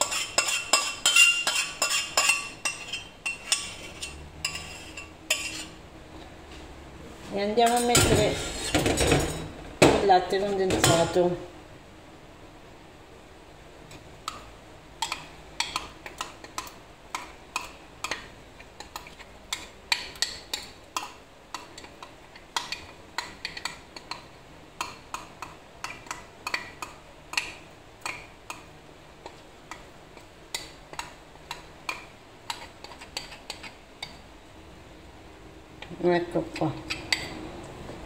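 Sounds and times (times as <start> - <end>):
metal spoon scraping a container: 0.0 - 5.8, 7.8 - 8.9.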